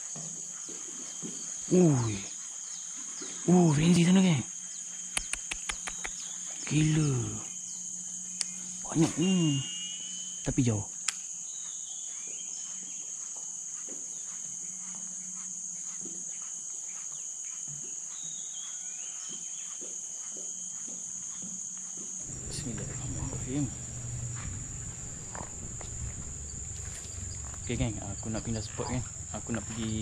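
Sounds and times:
insects droning: 0:00.0 - 0:30.0
low rumble: 0:22.3 - 0:30.0.

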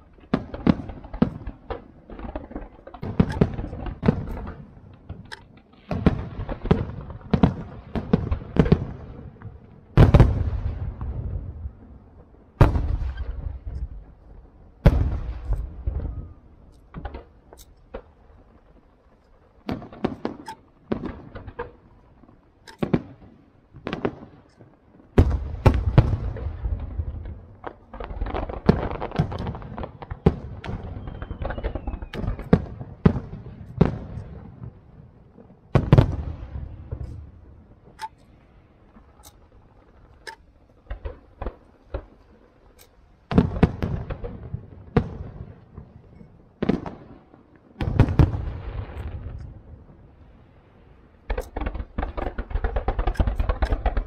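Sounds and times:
firework shells bursting: 0:00.2 - 0:08.9, 0:51.2 - 0:54.0.

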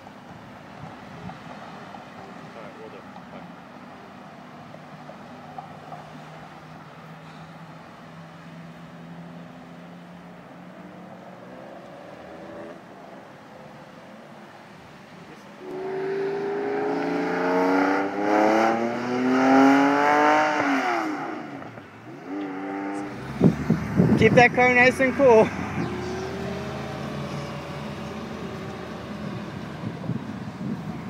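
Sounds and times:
low engine hum: 0:00.0 - 0:31.0
sports car accelerating hard: 0:05.0 - 0:13.2, 0:15.6 - 0:24.3, 0:25.0 - 0:31.0.

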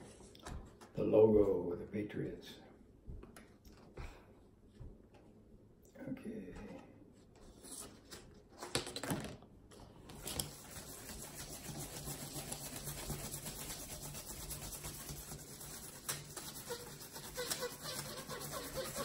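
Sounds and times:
marker scratching on paper plate: 0:10.5 - 0:19.0.

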